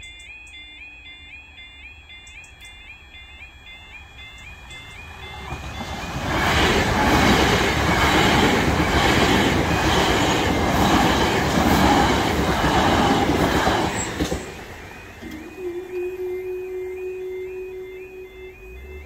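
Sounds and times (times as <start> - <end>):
train wheels rushing on rail: 3.6 - 17.3.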